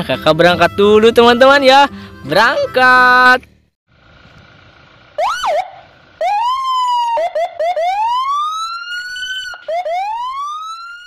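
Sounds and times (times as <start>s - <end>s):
siren-like wail: 5.2s - 11.0s.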